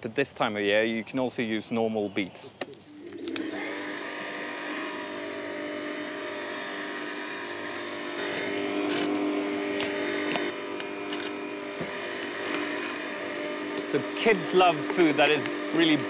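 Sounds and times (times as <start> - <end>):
electric meat grinder running: 3.0 - 16.0.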